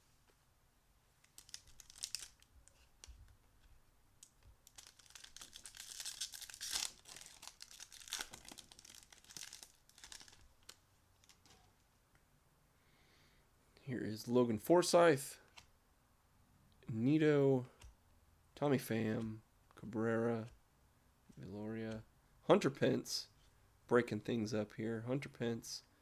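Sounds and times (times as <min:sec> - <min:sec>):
foil wrapper tearing and crinkling: 0:01.2 - 0:02.9, 0:04.6 - 0:11.5.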